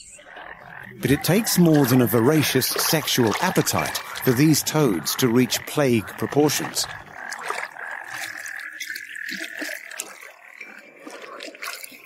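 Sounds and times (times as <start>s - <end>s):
light water splashes: 1.0s - 12.0s.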